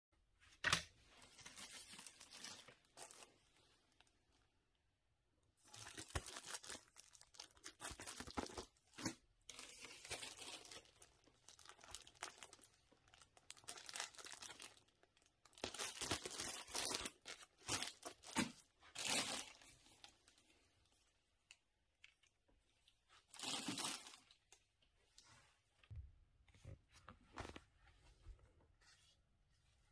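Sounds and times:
plastic bags crinkling: 1.3 - 3.3, 5.7 - 19.7, 23.3 - 24.5.

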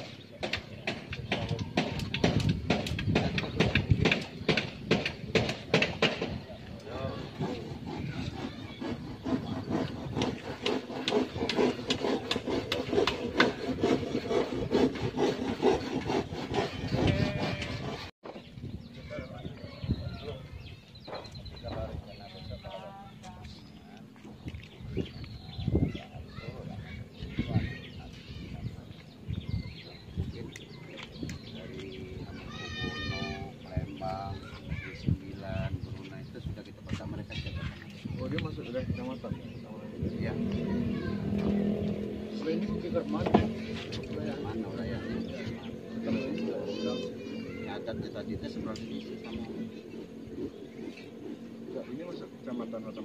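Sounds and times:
low voices: 6.2 - 53.0
rhythmic scraping strokes: 6.8 - 18.1, 39.9 - 53.0.

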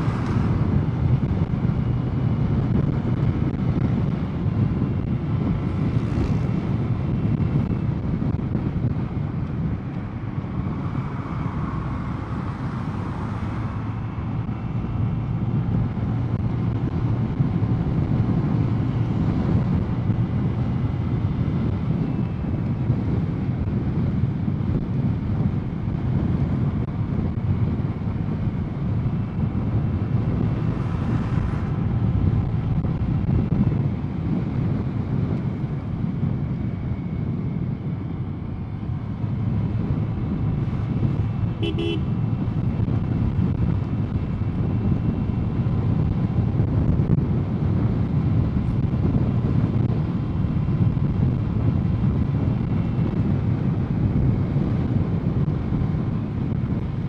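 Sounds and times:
wind and road noise: 0.0 - 57.0
scooter horn toot: 41.6 - 42.1.

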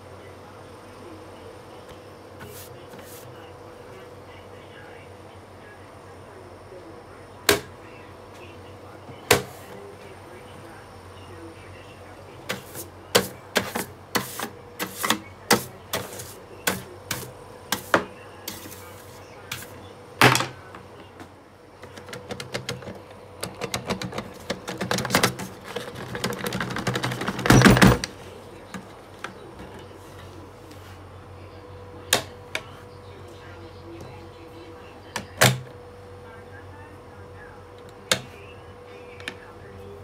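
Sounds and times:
plastic rattling clatter: 21.9 - 28.2.

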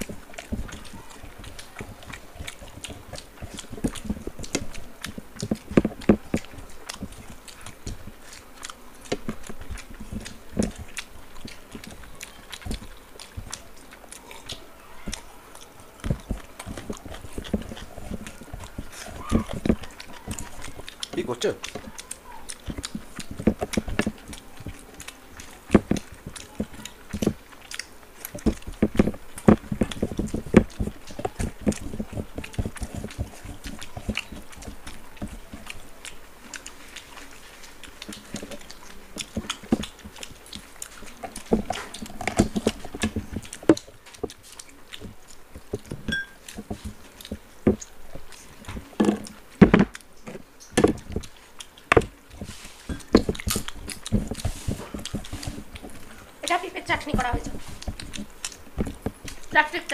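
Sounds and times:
chewing and lip-smacking: 0.0 - 59.9
fingers mixing food on plates: 0.0 - 59.9.

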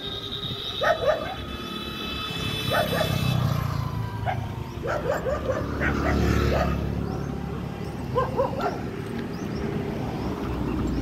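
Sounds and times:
dog yelping: 0.8 - 1.5, 2.7 - 3.2, 4.2 - 6.9, 8.1 - 8.8.

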